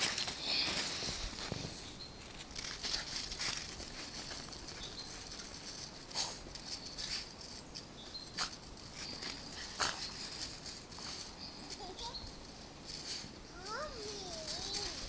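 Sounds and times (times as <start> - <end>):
scuffs in snow: 0.0 - 4.9
crunching in snow: 0.0 - 12.2.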